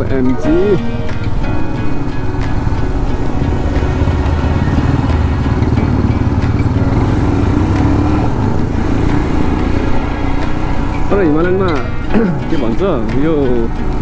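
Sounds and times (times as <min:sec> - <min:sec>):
motorcycle engine accelerating: 0:00.8 - 0:14.0.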